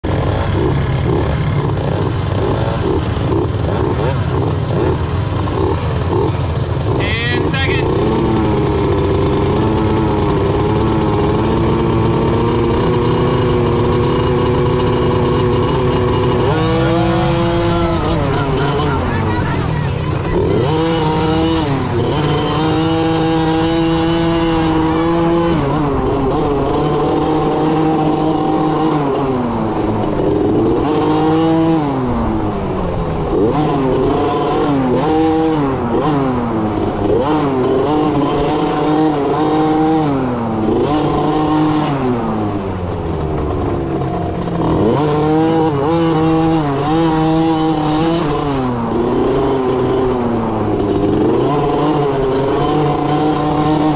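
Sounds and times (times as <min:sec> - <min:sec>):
dirt bike engine revving: 0:00.0 - 0:53.9.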